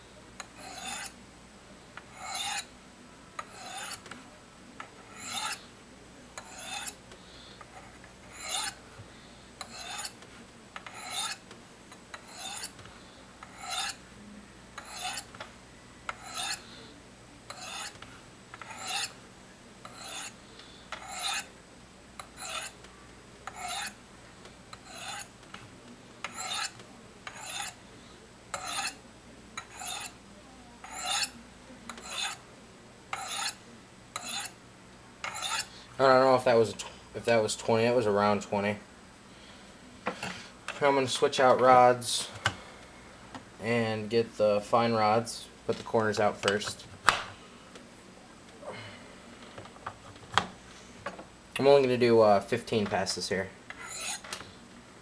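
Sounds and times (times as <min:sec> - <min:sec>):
knife scraping on ceramic rods: 0:00.4 - 0:01.2, 0:02.1 - 0:02.7, 0:03.4 - 0:04.1, 0:05.1 - 0:05.6, 0:06.4 - 0:07.0, 0:07.7 - 0:08.8, 0:09.6 - 0:10.2, 0:10.8 - 0:11.4, 0:12.1 - 0:12.8, 0:13.4 - 0:14.0, 0:14.8 - 0:15.3, 0:16.1 - 0:16.6, 0:17.5 - 0:18.0, 0:18.6 - 0:19.2, 0:19.8 - 0:21.5, 0:22.2 - 0:22.8, 0:23.4 - 0:24.0, 0:24.7 - 0:25.3, 0:26.2 - 0:27.8, 0:28.5 - 0:29.0, 0:29.6 - 0:30.2, 0:30.8 - 0:32.4, 0:33.1 - 0:33.6, 0:34.2 - 0:34.6, 0:35.2 - 0:35.7, 0:53.7 - 0:54.4.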